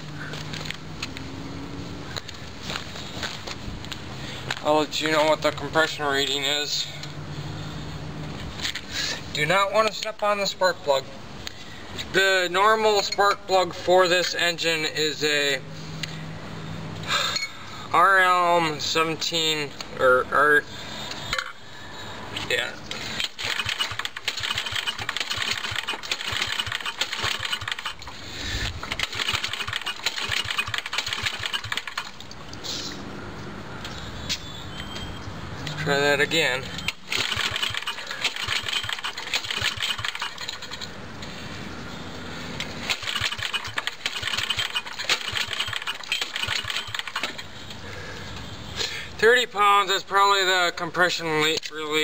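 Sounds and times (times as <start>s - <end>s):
small engine recoil starter cranking: 23.1s - 32.2s, 36.8s - 40.9s, 42.8s - 47.5s.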